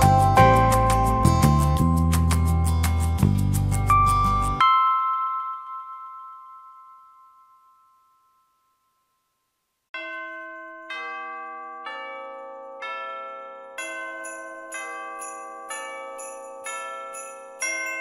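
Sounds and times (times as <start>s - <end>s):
bell-like closing chord: 3.9s - 9.2s
slow chime notes: 4.0s - 9.4s.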